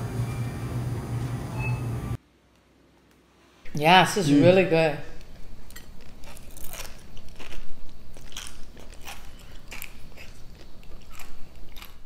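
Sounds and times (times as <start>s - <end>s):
person chewing crunchy noodles: 5.7s - 12.0s.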